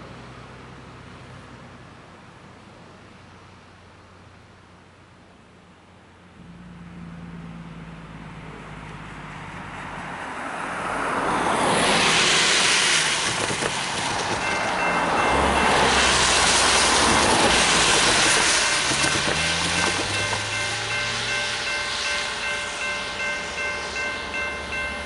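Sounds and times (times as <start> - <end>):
tyres hissing on wet road: 8.6 - 25.0
railway crossing warning bell: 13.0 - 25.0.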